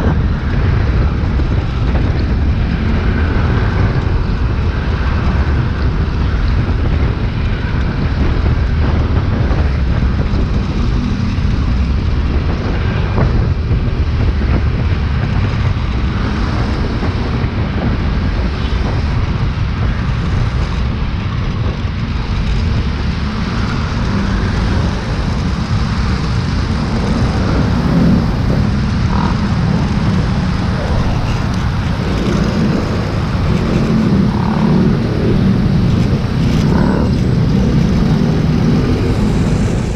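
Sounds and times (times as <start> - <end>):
passing road traffic: 0.0 - 39.9
wind buffeting microphone: 0.0 - 39.9
scooter engine: 22.3 - 39.9.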